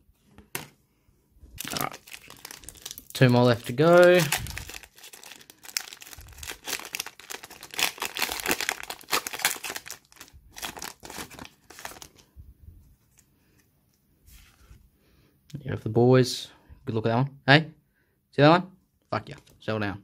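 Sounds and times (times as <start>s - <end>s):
foil wrapper tearing and crinkling: 1.6s - 12.2s.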